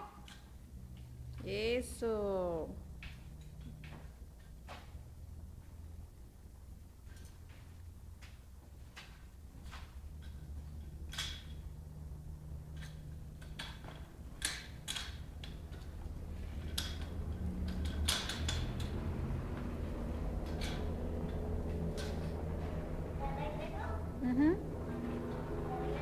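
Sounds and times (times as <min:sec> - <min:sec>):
wheels rolling rumble on concrete: 0:02.8 - 0:26.0
bicycle clicking and creaking: 0:06.6 - 0:23.2.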